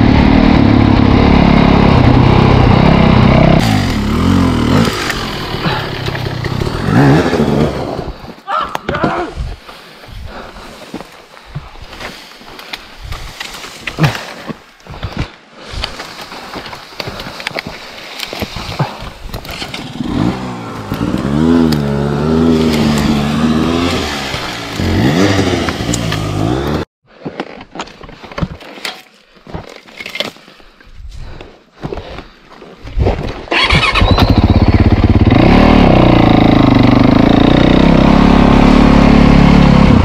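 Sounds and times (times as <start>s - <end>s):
dirt bike engine revving: 0.0s - 8.3s, 19.8s - 26.9s, 33.5s - 40.0s
branches and twigs snapping: 12.5s - 21.9s, 22.5s - 26.6s.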